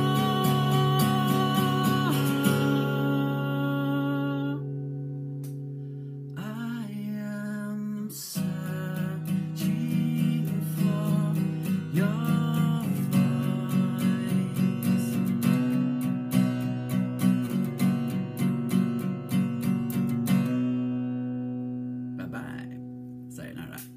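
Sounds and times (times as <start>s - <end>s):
person singing: 0.0s - 4.8s, 6.4s - 15.3s
acoustic guitar strumming: 0.0s - 23.9s.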